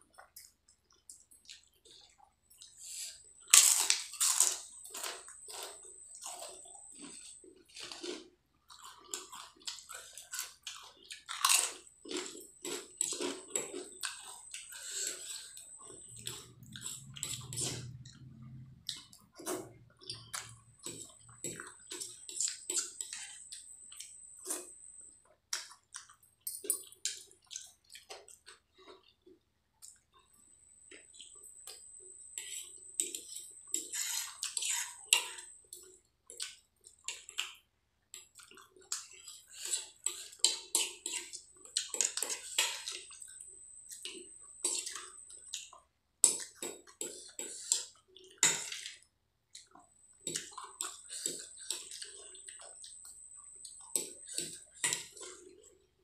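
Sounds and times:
crunching potato chips: 3.4 - 14.2.

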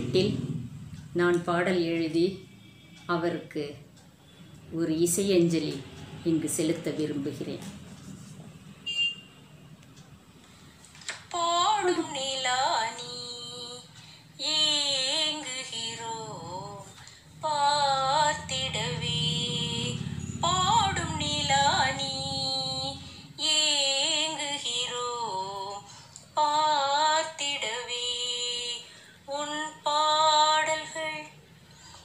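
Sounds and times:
woman singing unaccompanied: 11.2 - 31.5.

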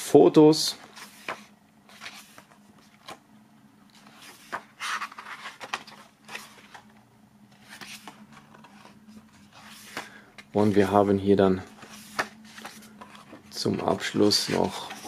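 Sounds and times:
book pages turning: 0.8 - 3.2, 3.8 - 11.0, 11.6 - 15.0.

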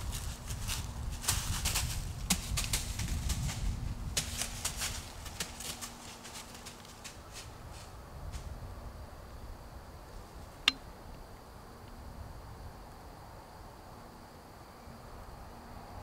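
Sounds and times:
rustling and crunching: 0.0 - 8.5.

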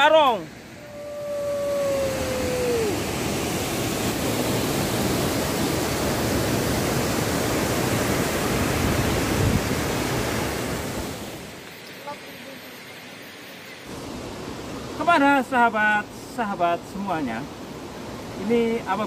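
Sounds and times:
waterfall rushing: 0.0 - 11.6.

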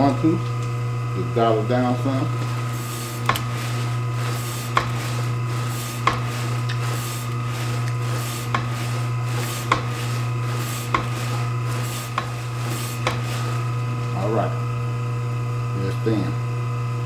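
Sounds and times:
meat slicer motor hum: 0.0 - 17.0
blade rasping through meat: 2.5 - 13.8.

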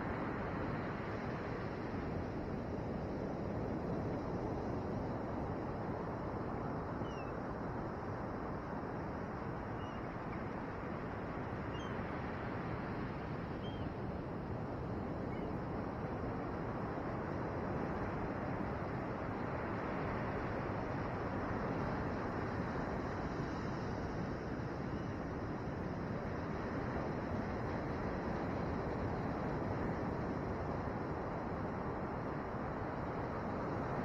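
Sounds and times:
faint short bird calls: 9.8 - 10.1, 11.7 - 12.0, 13.6 - 13.9.

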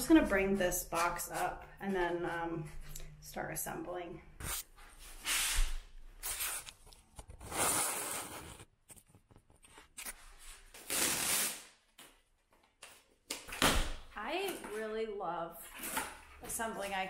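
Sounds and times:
cardboard tearing: 7.4 - 8.7, 10.0 - 11.7.

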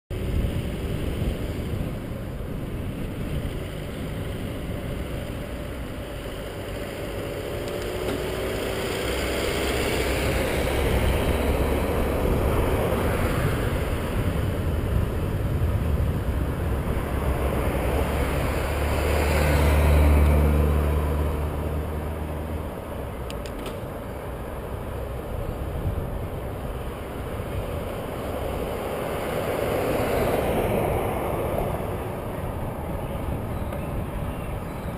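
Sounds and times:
highway traffic passing: 0.1 - 34.9
wind rushing over camera: 0.1 - 34.9.

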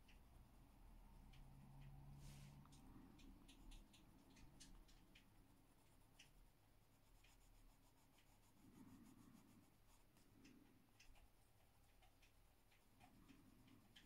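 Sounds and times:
coloured pencil scratching on paper: 5.6 - 10.4.

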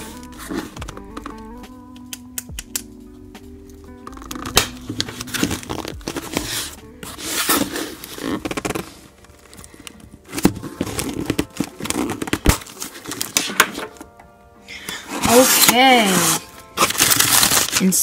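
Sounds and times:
pen tearing through tape and cardboard: 4.0 - 9.0, 10.3 - 13.8, 15.2 - 17.9.

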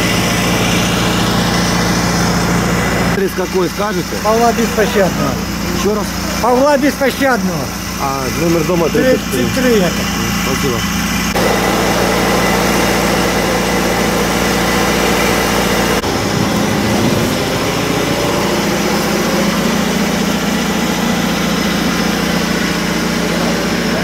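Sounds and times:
mechanical engine hum: 0.0 - 24.0
deep rumble: 15.8 - 21.7.

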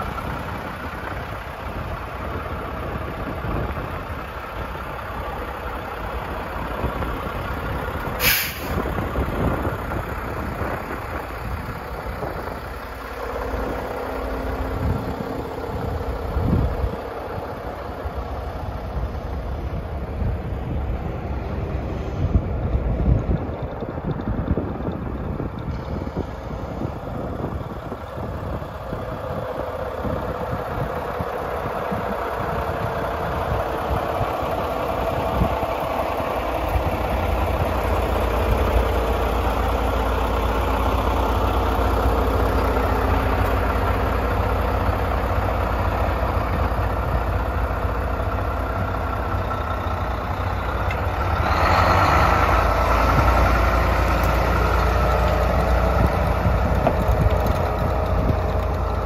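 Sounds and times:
diesel truck engine idling: 0.0 - 59.0.

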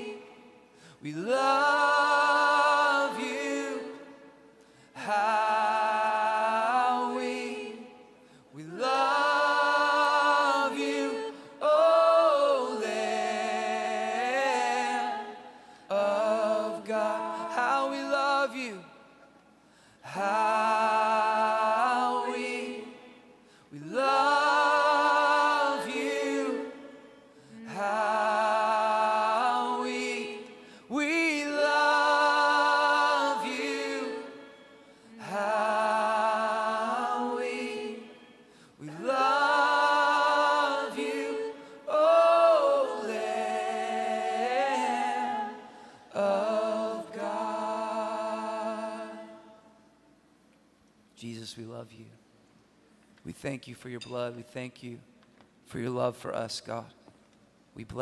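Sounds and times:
voices singing worship song: 0.0 - 50.2.

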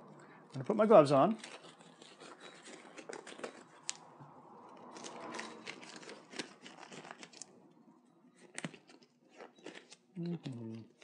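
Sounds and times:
gloves rustling and crinkling: 0.6 - 7.6.

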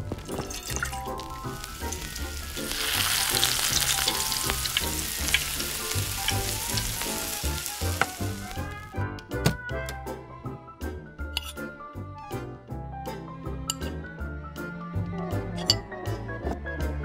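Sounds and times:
egg sizzling in hot oil: 0.0 - 8.8.

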